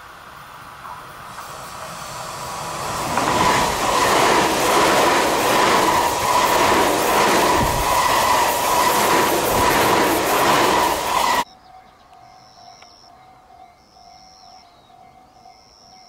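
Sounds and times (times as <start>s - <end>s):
electric train passing: 0.0s - 11.5s
wheel and rail noise: 0.0s - 11.5s.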